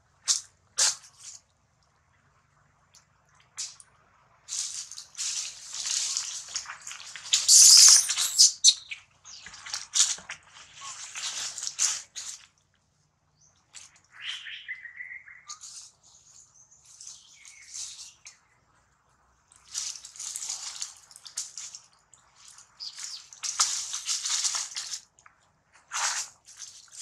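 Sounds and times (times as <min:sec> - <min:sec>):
dry leaves rustling and crunching: 0:04.5 - 0:08.5, 0:09.3 - 0:12.5, 0:19.6 - 0:25.1, 0:25.8 - 0:27.0.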